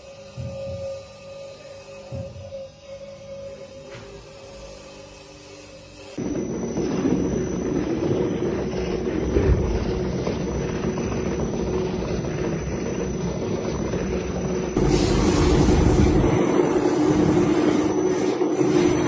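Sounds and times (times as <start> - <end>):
finishing machine motor hum: 6.2 - 19.0.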